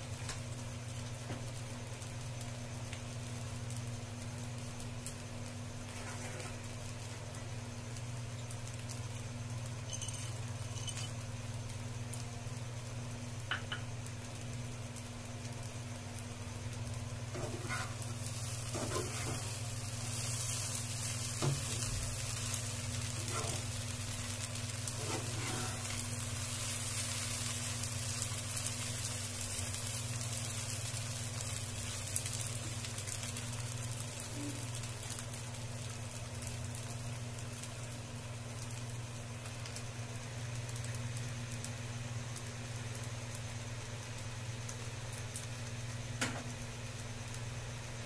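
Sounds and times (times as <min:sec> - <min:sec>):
food sizzling in a pan: 0:00.0 - 0:48.0
steady low hum: 0:00.0 - 0:48.0
metal spatula scraping pan: 0:25.0 - 0:25.8.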